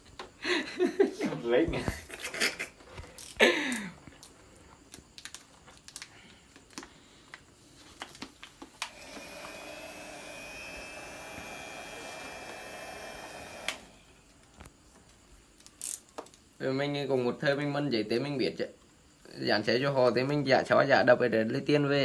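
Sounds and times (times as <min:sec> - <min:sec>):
hot-air blower running: 0:08.8 - 0:14.3.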